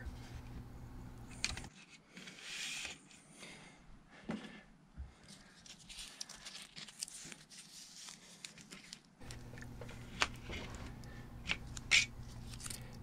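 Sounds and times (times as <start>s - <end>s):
low steady hum: 0.0s - 1.7s, 3.4s - 13.0s
tape rustling and crinkling: 5.2s - 13.0s.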